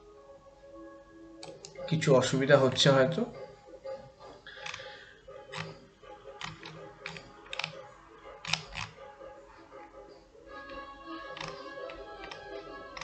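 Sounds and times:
computer mouse clicking: 4.5s - 5.8s, 6.4s - 7.8s, 8.4s - 9.0s, 11.3s - 13.0s.

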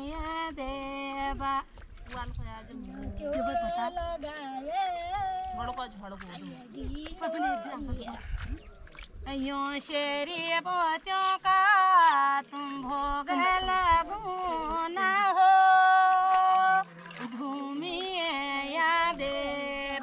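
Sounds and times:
women singing unaccompanied: 0.0s - 8.6s, 9.2s - 20.0s.

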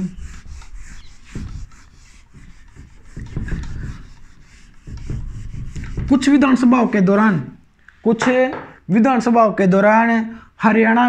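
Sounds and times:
pen scratching while handwriting: 0.0s - 6.6s.

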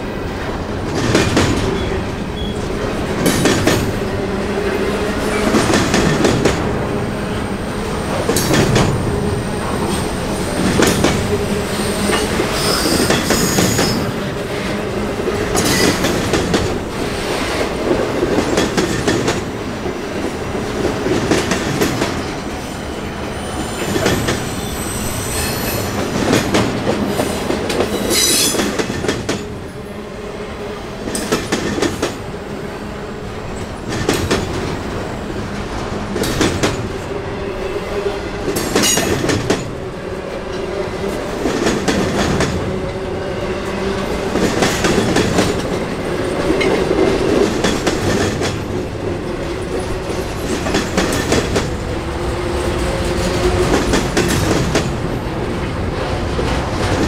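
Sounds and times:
high-pitched wheel squeal: 11.8s - 14.0s.

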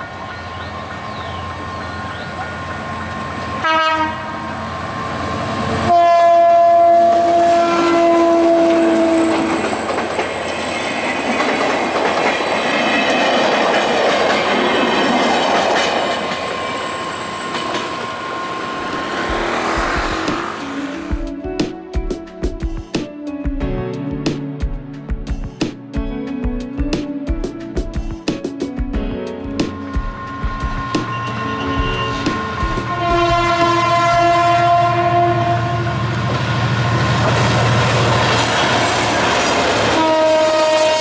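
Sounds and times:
train horn blasts: 2.8s - 9.7s, 30.1s - 36.3s, 39.7s - 41.0s
train wheels clattering on rails: 8.5s - 21.5s, 29.6s - 33.9s, 36.2s - 40.1s.

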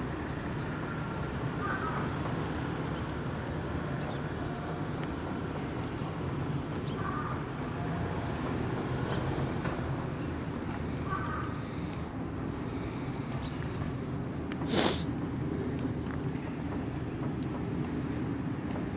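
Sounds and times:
street ambience low rumble: 0.0s - 18.9s.

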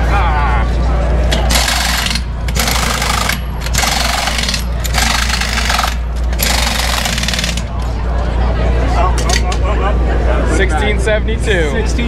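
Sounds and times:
steady low hum: 0.0s - 12.0s
impact wrench rattling: 1.3s - 7.9s.

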